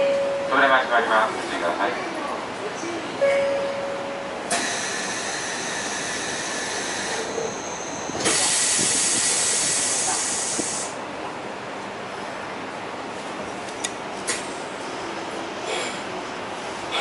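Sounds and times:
compressed air hissing: 8.2 - 11.0.

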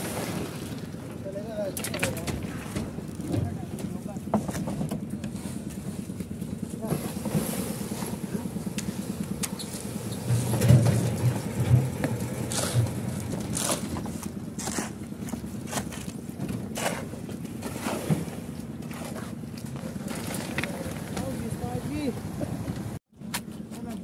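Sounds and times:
engine machinery running: 2.2 - 23.0
wheelbarrow and tools knocking: 9.4 - 18.3
wet concrete sliding into wheelbarrow: 10.4 - 15.0.

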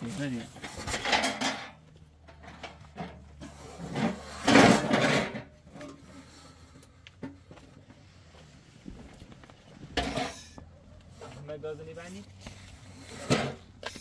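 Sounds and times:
belongings rubbing and scraping: 0.0 - 14.0
loud rustling scrape: 3.4 - 6.7, 10.0 - 14.0.

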